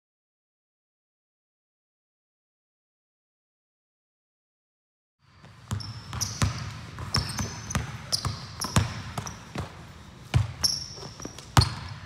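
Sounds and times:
sneakers squeaking on court: 5.3s - 12.0s
basketball bouncing on wooden floor: 5.4s - 12.0s.

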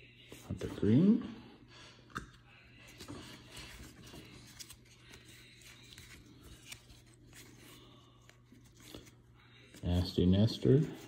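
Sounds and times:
cards rustling and clicking: 2.9s - 9.8s.

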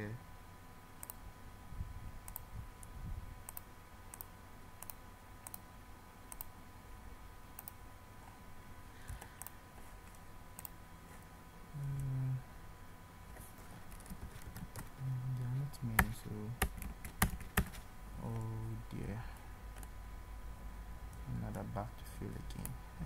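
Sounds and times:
faint electrical hum: 0.0s - 23.0s
short low hum: 8.4s - 12.6s.

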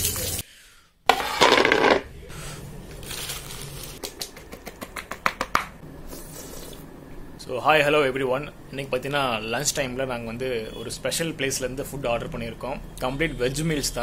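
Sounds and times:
crinkling handling noises: 2.9s - 4.0s.

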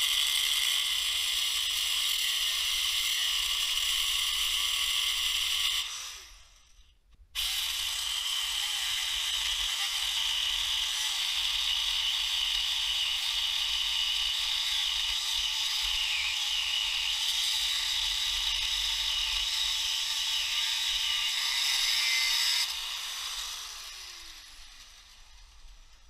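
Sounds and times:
angle grinder cutting steel: 0.0s - 6.6s, 7.4s - 26.0s
grinder motor winding down: 7.4s - 26.0s.

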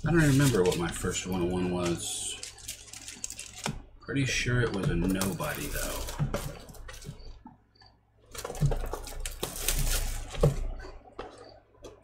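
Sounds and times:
shrink-wrapped box crinkling: 0.0s - 3.8s, 5.1s - 7.1s, 8.3s - 10.6s.

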